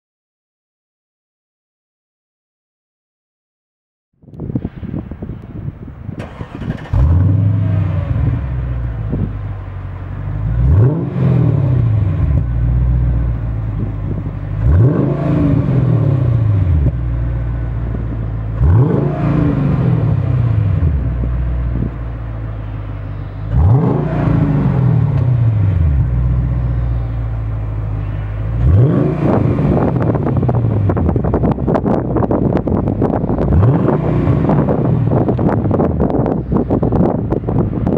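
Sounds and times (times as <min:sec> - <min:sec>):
car engine idling: 0:05.5 - 0:37.9
engine revving: 0:06.2 - 0:08.9, 0:10.3 - 0:17.2, 0:18.0 - 0:22.0, 0:22.6 - 0:37.9.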